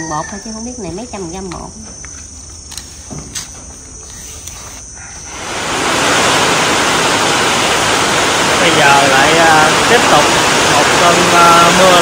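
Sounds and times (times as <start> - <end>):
heavy rain hissing: 5.2 - 12.0.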